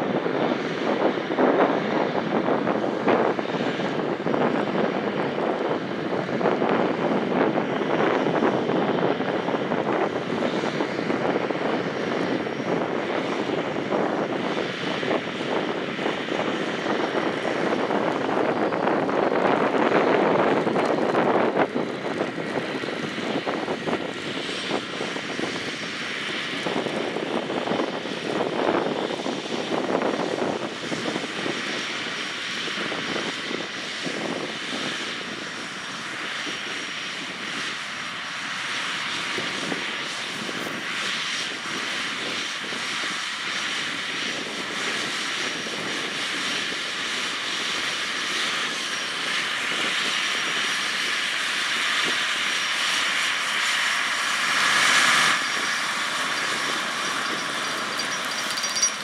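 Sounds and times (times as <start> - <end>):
tractor engine under load: 52.8 - 59.0.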